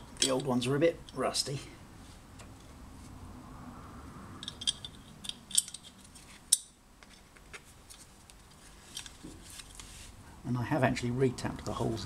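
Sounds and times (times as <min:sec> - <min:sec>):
small metal parts clinking: 0:00.0 - 0:01.3, 0:04.4 - 0:07.2, 0:08.8 - 0:09.2.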